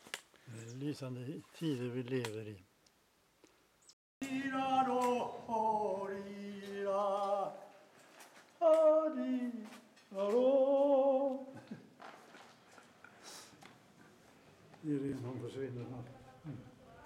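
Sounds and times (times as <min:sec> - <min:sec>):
person singing unaccompanied: 0:04.2 - 0:07.9, 0:08.5 - 0:11.8.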